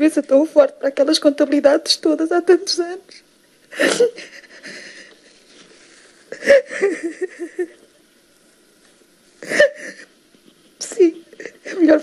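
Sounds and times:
woman sobbing: 0:03.7 - 0:05.1, 0:06.3 - 0:07.8, 0:09.4 - 0:10.2, 0:10.8 - 0:12.0.

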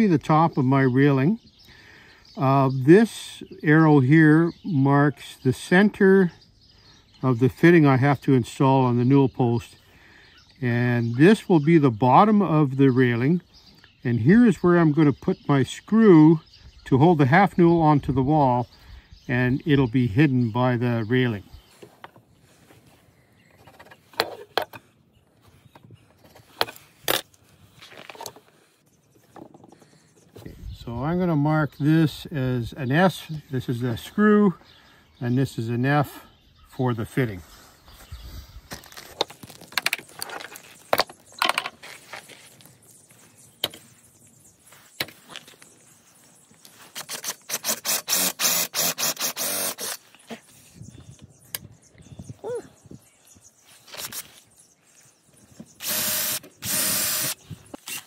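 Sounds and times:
scraping and handling noise: 0:21.7 - 0:28.6, 0:38.7 - 0:44.0
cordless drill boring into wood: 0:47.0 - 0:50.0, 0:55.8 - 0:58.0.

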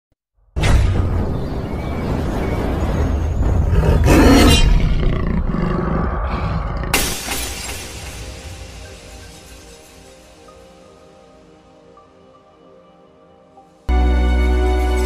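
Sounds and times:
sudden crash: 0:00.6 - 0:05.5
big cat roaring: 0:03.6 - 0:07.0.

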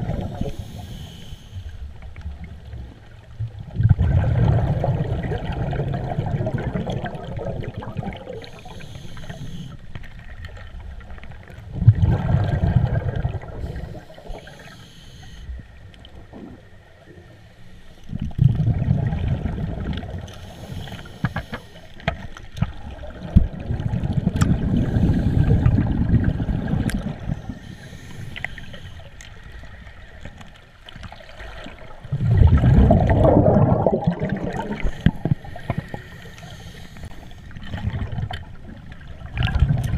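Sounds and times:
exhaled bubbles gurgling: 0:00.0 - 0:01.1, 0:02.0 - 0:14.9, 0:18.1 - 0:21.4, 0:22.0 - 0:28.8, 0:29.4 - 0:39.9
faint regulator hiss: 0:00.1 - 0:02.4, 0:08.2 - 0:11.4, 0:13.4 - 0:18.4, 0:20.2 - 0:22.9, 0:24.7 - 0:25.9, 0:26.6 - 0:32.0, 0:34.7 - 0:37.6.

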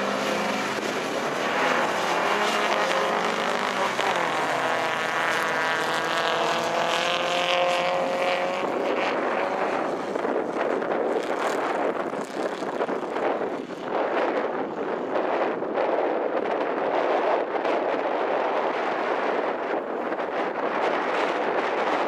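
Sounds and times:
rally car engines revving: 0:00.0 - 0:16.0.

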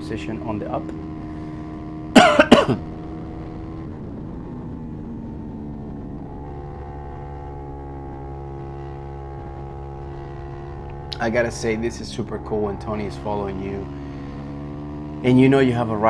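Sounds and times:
motorcycle engine running: 0:00.0 - 0:16.0
engine double cough: 0:02.1 - 0:03.0.

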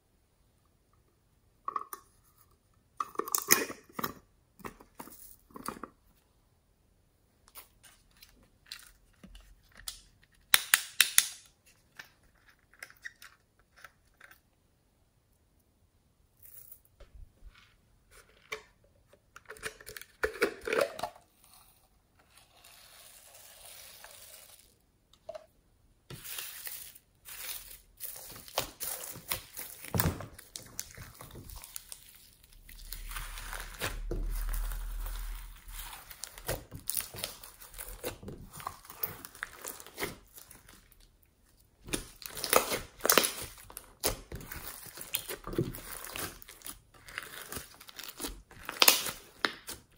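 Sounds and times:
slime crackling and crunching: 0:27.2 - 0:41.0, 0:41.8 - 0:49.9.

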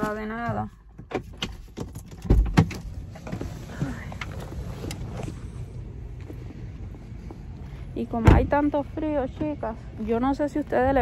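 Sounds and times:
low outdoor rumble: 0:02.6 - 0:11.0.

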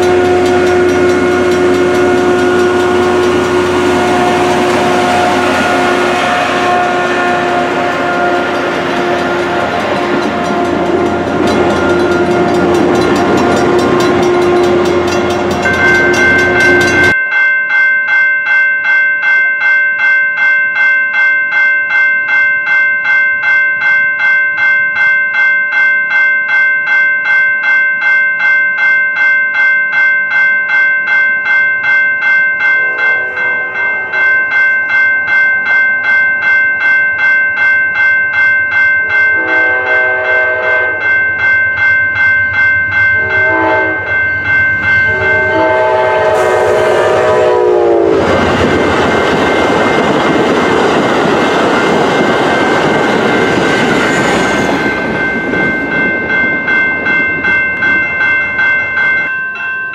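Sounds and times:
distant train horn: 0:00.0 - 0:17.1, 0:32.8 - 0:34.3, 0:39.0 - 0:41.2, 0:43.1 - 0:49.2
diesel locomotive rumbling past: 0:00.0 - 0:17.2, 0:39.0 - 0:59.2
railroad crossing bell ringing: 0:00.0 - 0:59.9.

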